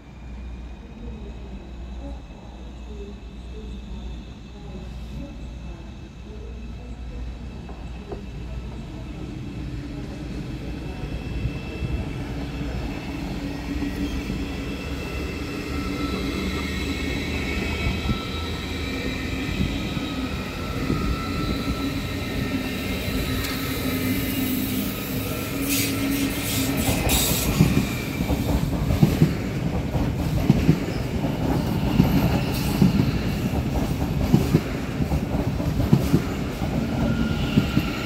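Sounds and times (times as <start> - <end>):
electric train rumbling past: 0.0 - 38.0
train wheel squeal: 11.1 - 29.6, 30.7 - 33.8, 36.0 - 38.0.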